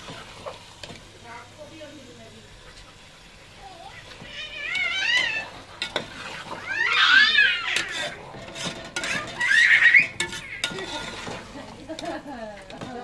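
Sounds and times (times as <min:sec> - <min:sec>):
high-pitched wavering cries: 0:03.6 - 0:05.6, 0:06.5 - 0:08.2, 0:09.0 - 0:10.7
metal ladle scraping cooking pot: 0:04.1 - 0:13.0.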